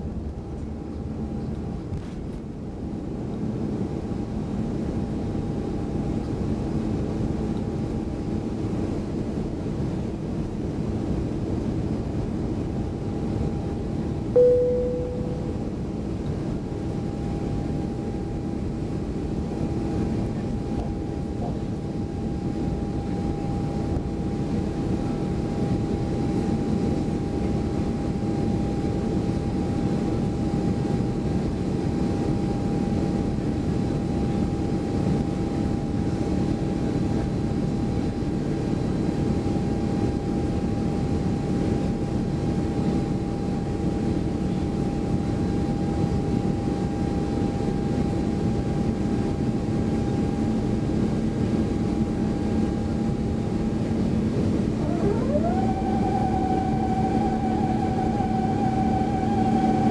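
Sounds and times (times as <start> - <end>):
faint steady whine: 0.0 - 59.9
jet engines roaring: 52.9 - 59.9.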